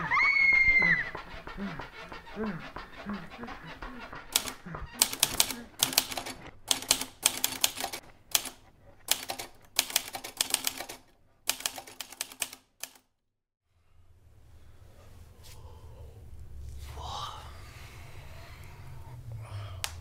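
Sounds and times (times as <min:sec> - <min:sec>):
fast typing on typewriter: 0:04.2 - 0:13.0.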